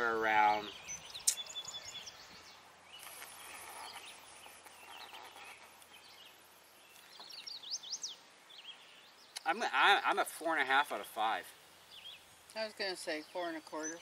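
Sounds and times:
birds chirping: 0:00.0 - 0:14.0
high chirps: 0:00.6 - 0:06.0.

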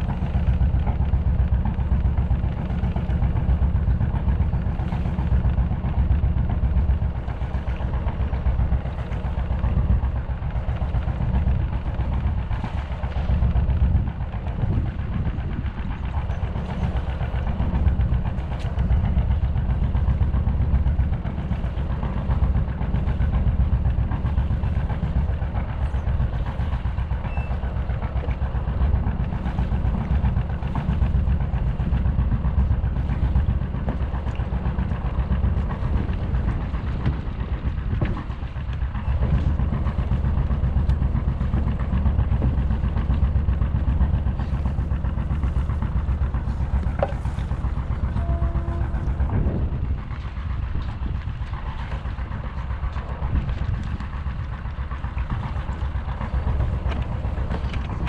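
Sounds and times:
boat diesel engine rumbling: 0:00.0 - 0:58.0.

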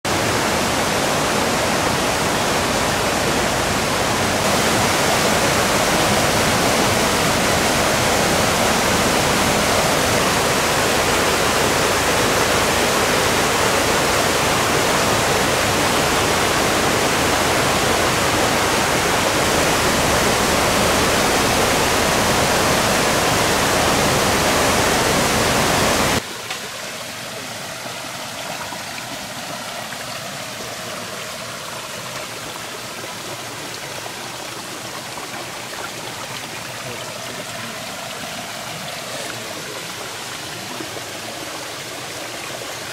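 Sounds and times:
stream rushing over boulders: 0:00.1 - 0:42.9.

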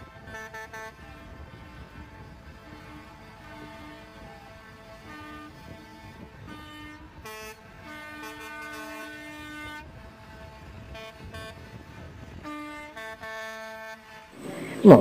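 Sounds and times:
truck air horns honking: 0:00.3 - 0:15.0
truck engines rumbling: 0:14.4 - 0:15.0.

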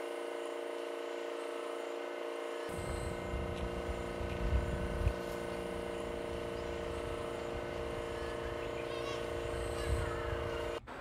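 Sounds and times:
hum of held tones: 0:00.0 - 0:11.0
low gusty rumble: 0:02.7 - 0:10.8.

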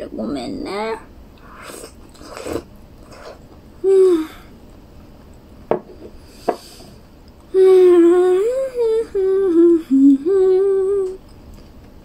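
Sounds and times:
woman humming a tune: 0:03.8 - 0:04.5, 0:07.5 - 0:11.2.

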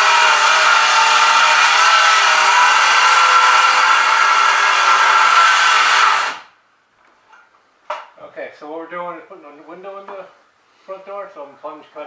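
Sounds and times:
power saw cutting wood: 0:00.0 - 0:06.5.

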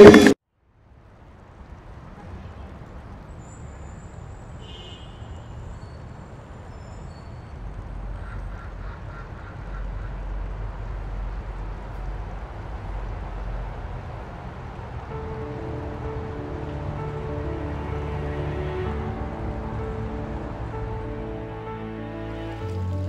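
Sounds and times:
faint high chirps and whistles: 0:03.4 - 0:07.6
low ambient rumble: 0:09.6 - 0:23.0.

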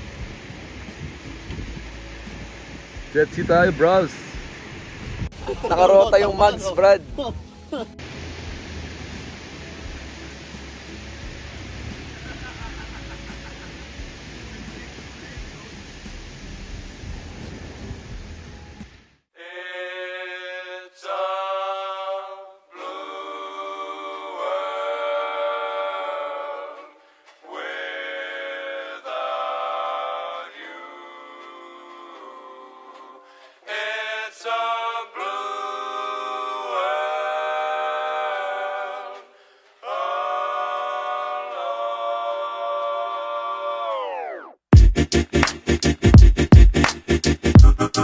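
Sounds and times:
a cappella voices singing: 0:19.4 - 0:44.2.

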